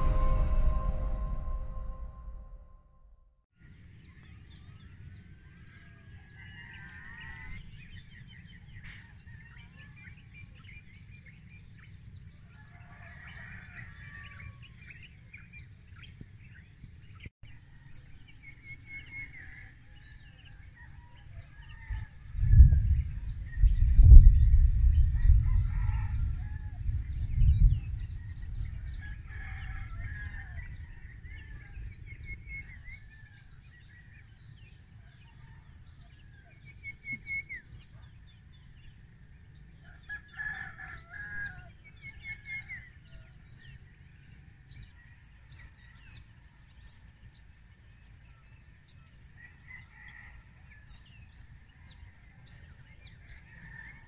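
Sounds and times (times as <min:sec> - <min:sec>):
steady low rumble: 0:00.0 - 0:03.1
loud low rumble: 0:00.0 - 0:03.2.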